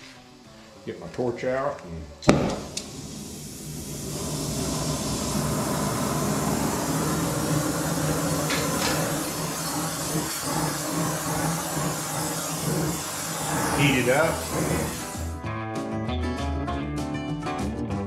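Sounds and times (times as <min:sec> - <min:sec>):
torch flame hissing: 0:02.2 - 0:15.4.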